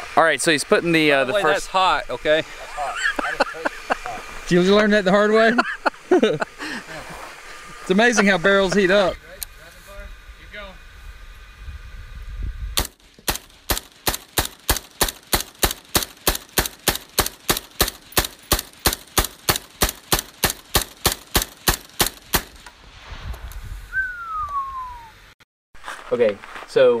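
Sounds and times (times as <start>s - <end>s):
suppressed rifle shots: 12.8s - 22.6s
falling whistle: 23.9s - 25.2s.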